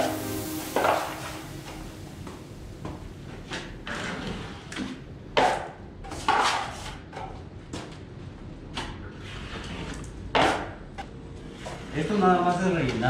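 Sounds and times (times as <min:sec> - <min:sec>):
drywall knife scraping compound: 0:05.4 - 0:07.0.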